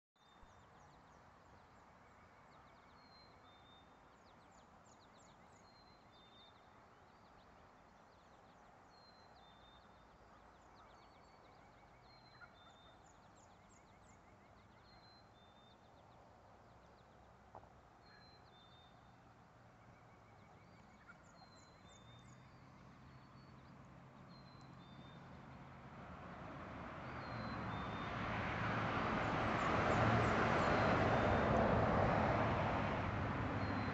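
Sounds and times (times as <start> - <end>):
distant traffic hum: 0.3 - 33.9
passing vehicle: 21.9 - 33.9.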